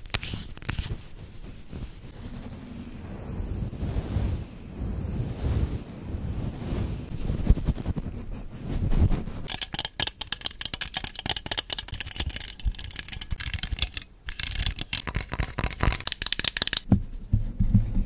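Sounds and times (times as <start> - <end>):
makeup brush stroking microphone: 0.0 - 16.7
plastic hair clips clicking: 9.5 - 16.9.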